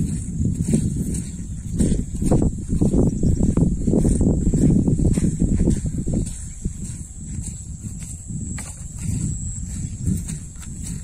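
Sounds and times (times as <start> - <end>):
wind buffeting microphone: 0.0 - 11.0
high-pitched whine: 7.6 - 11.0.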